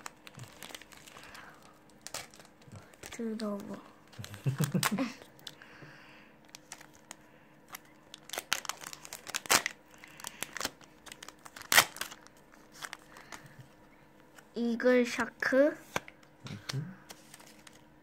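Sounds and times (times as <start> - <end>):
foil wrapper tearing and crinkling: 0.0 - 5.6, 6.4 - 13.4.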